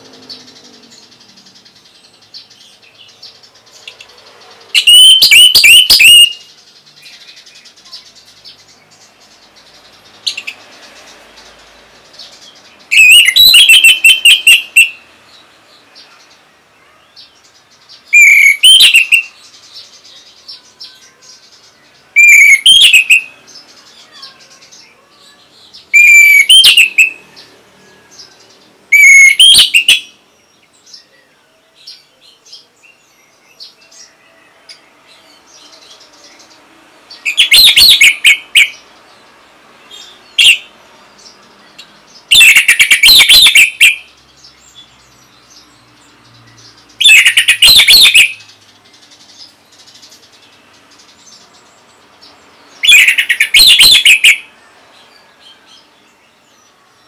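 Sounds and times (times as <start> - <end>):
soft short bird chirps: 4.8 - 6.3.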